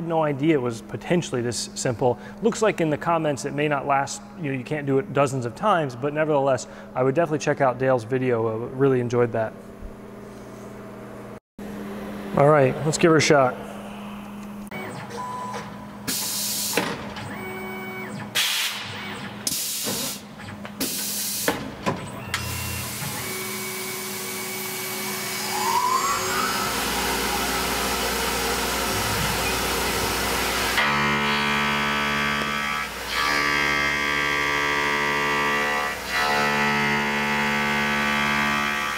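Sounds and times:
buzzing hum: 9.6s - 16.1s, 22.3s - 38.9s
air hiss bursts: 16.1s - 16.9s, 18.4s - 18.9s, 20.8s - 21.6s
milling machine spindle whine: 22.1s - 38.9s
mill running hum: 24.7s - 30.9s.

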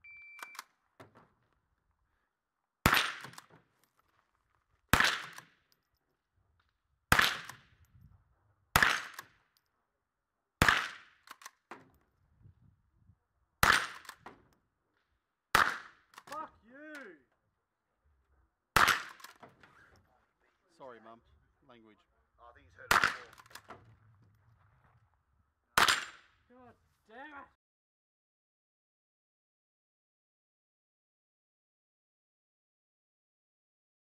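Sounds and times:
shot timer beep: 0.0s - 0.6s
rifle shots: 2.8s - 3.5s, 4.9s - 5.5s, 7.1s - 7.7s, 8.7s - 9.4s, 10.6s - 11.5s, 13.6s - 14.2s, 15.5s - 16.3s, 18.8s - 19.4s, 22.9s - 23.7s, 25.8s - 26.4s.

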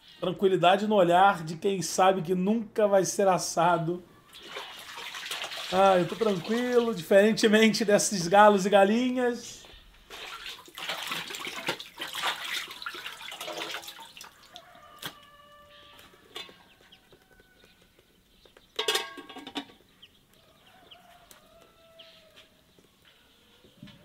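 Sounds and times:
chickens calling: 3.7s - 10.3s, 11.0s - 24.0s
water splashing in metal basin: 4.3s - 7.1s, 10.0s - 14.8s
rooster crowing: 13.9s - 17.9s, 20.4s - 22.6s.

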